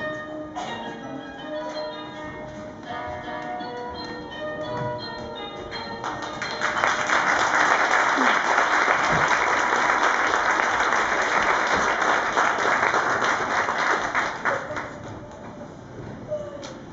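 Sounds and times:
audience applauding: 6.0s - 15.3s.

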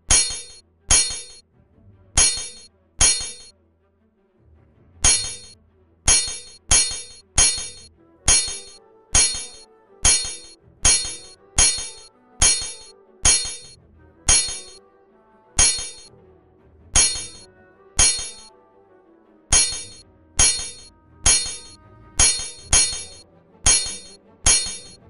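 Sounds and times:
swords clashing: 0.0s - 1.4s, 2.2s - 3.5s, 5.0s - 5.5s, 6.1s - 13.7s, 14.3s - 14.8s, 15.6s - 16.1s, 17.0s - 18.5s, 19.5s - 25.0s.

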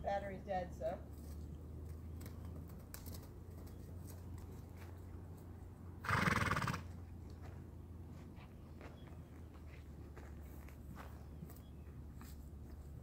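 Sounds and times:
horse snorting: 6.0s - 7.0s.

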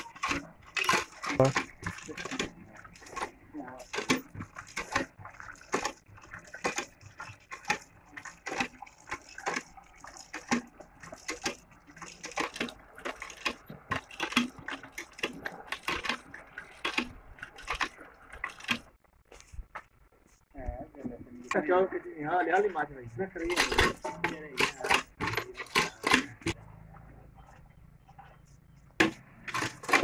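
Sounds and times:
water pouring from a pipe: 0.0s - 19.0s, 23.4s - 26.6s, 29.0s - 30.0s
bull slurping water: 0.0s - 19.5s, 23.2s - 30.0s.

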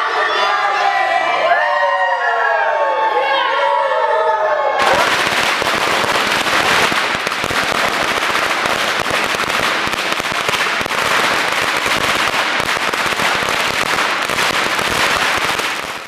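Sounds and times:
firecrackers crackling: 4.8s - 16.0s.

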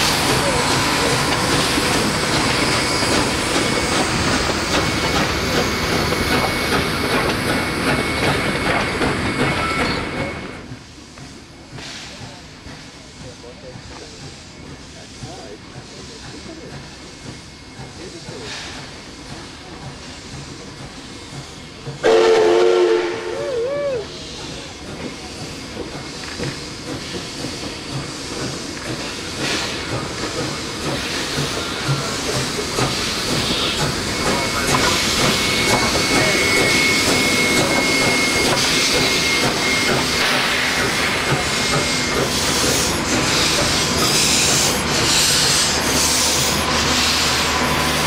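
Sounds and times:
hiss of escaping steam: 0.0s - 48.0s
train rail rumble: 0.0s - 48.0s
steam locomotive whistle: 22.0s - 24.2s.

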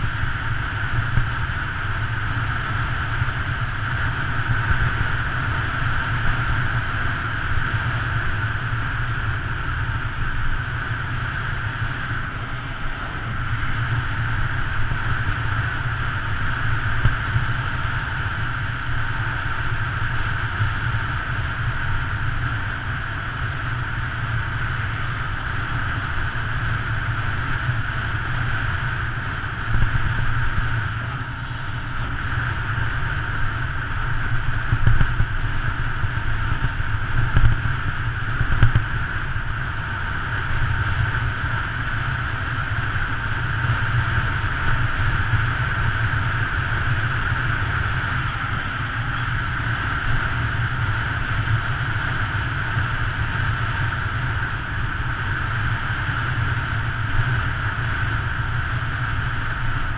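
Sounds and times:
deep rumble: 0.0s - 7.6s, 26.0s - 55.6s
bike tyres on asphalt: 0.0s - 59.9s
wind rushing over camera: 0.0s - 59.9s.

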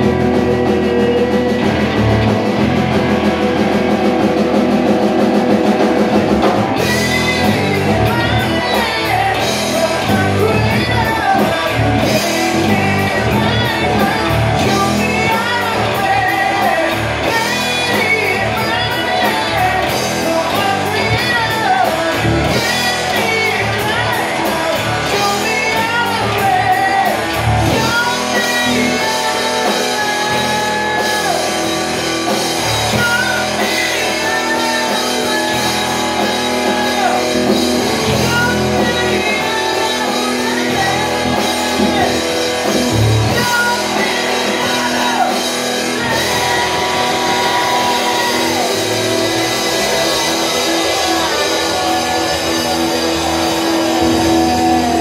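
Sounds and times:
live rock band playing: 0.0s - 55.0s
person singing: 0.0s - 55.0s.

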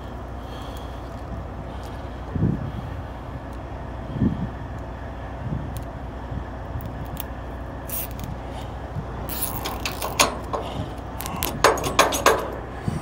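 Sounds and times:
steady low rumble: 0.0s - 13.0s
metal clicks and rattles: 9.3s - 12.7s.

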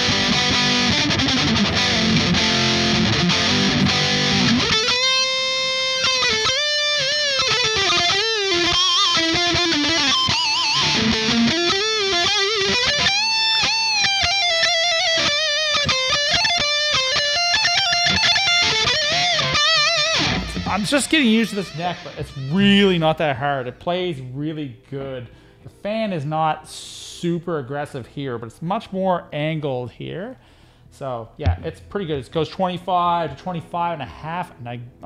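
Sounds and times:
distorted electric guitar: 0.0s - 23.1s.

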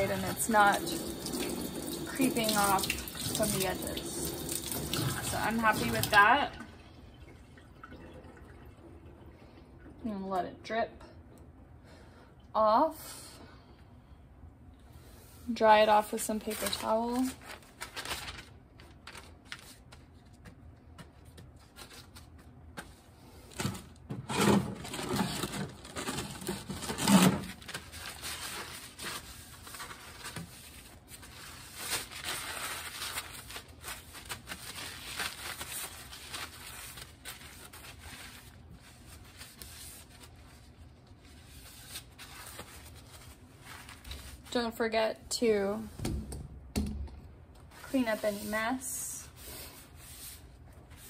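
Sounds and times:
paper towels rustling and crumpling: 15.5s - 24.0s, 24.8s - 44.7s, 47.6s - 51.0s.

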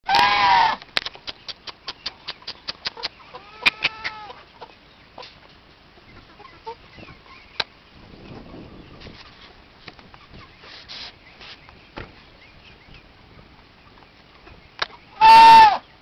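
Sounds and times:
chicken cackling: 0.1s - 9.5s, 13.8s - 16.0s.

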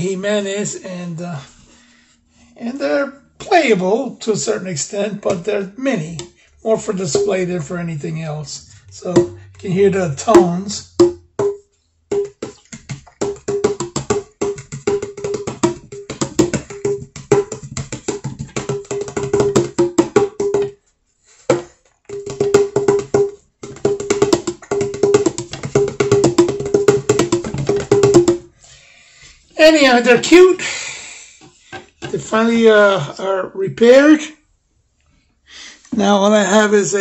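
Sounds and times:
congas played by hand: 7.1s - 7.3s, 8.8s - 20.8s, 21.5s - 28.6s.

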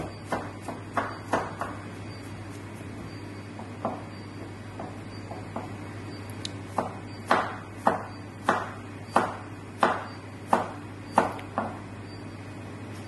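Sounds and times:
knife chopping on cutting board: 0.0s - 4.1s, 6.7s - 11.8s.

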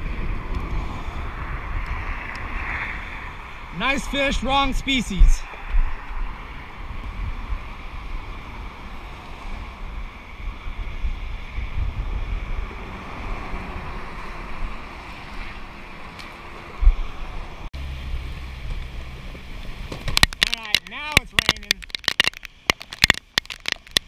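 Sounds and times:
wind buffeting microphone: 0.0s - 17.7s
rushing wind and water: 0.0s - 24.0s.

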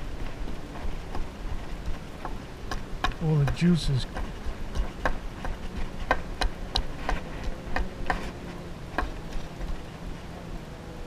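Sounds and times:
fist pounding clam meat on wood: 2.2s - 8.2s.

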